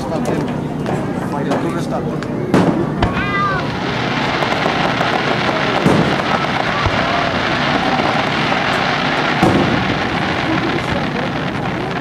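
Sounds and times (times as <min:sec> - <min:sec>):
fireworks booming: 0:02.5 - 0:12.0.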